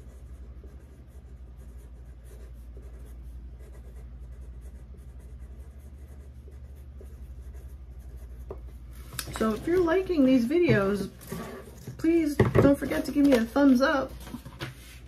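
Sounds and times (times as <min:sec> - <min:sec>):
pencil scratching on paper: 0:00.0 - 0:08.7
steady low hum: 0:00.0 - 0:15.0.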